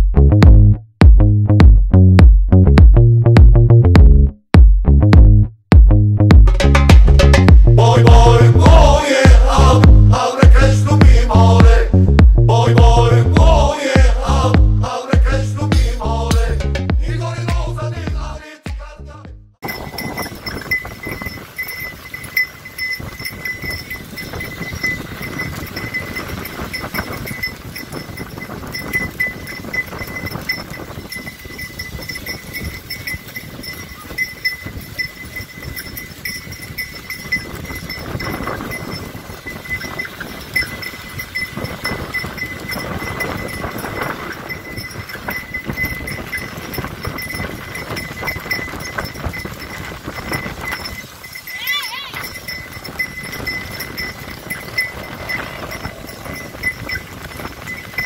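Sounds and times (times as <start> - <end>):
horse hooves beating: 0.0 - 58.0
cart rattling: 19.6 - 58.0
high ringing tone: 19.6 - 58.0.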